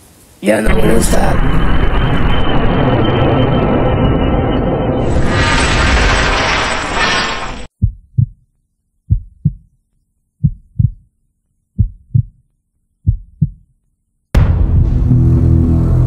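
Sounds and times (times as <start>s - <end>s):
loud noisy sound: 0.6s - 7.7s, 14.4s - 16.0s
heartbeat double thumps: 7.8s - 8.5s, 9.1s - 9.8s, 10.4s - 11.1s, 11.8s - 12.4s, 13.0s - 13.7s.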